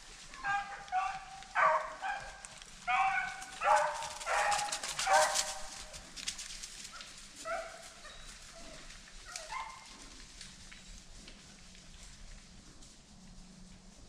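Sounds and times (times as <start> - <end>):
dry brush crackling: 0.0 - 14.0
dog barking: 0.3 - 5.9, 7.0 - 8.2, 9.3 - 9.9.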